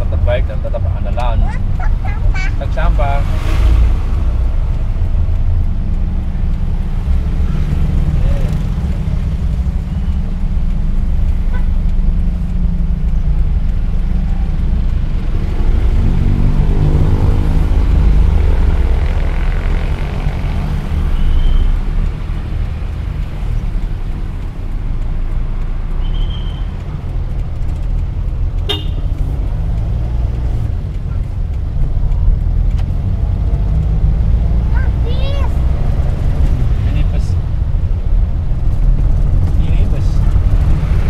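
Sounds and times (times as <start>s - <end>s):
vehicle engine and road noise: 0.0s - 41.0s
high horn toot: 28.7s - 29.1s.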